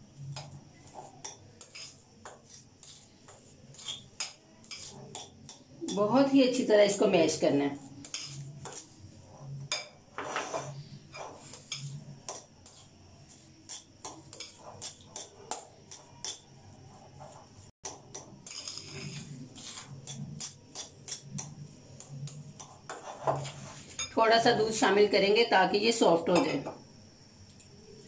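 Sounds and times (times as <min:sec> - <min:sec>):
soft mashing strokes: 0:00.0 - 0:05.8, 0:18.4 - 0:24.0.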